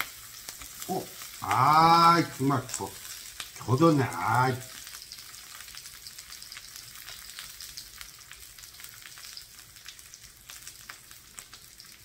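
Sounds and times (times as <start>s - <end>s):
meat sizzling in a grill pan: 0.0s - 12.0s.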